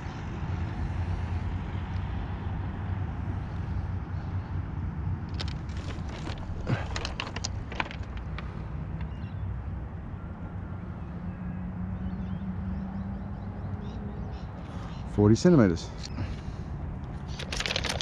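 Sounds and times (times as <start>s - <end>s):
low engine hum: 0.0s - 18.0s
sharp clicks and knocks: 17.2s - 18.0s.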